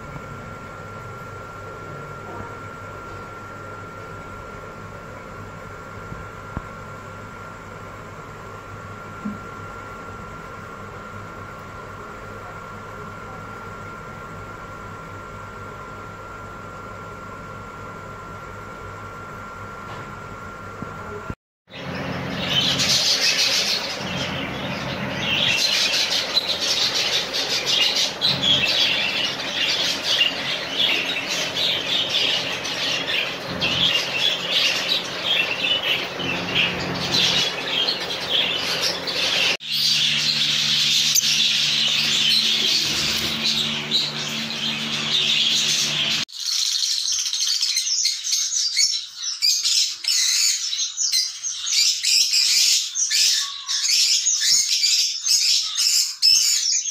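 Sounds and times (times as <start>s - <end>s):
lovebirds chirping and squawking: 21.8s - 56.9s
budgerigars chattering: 22.2s - 48.7s.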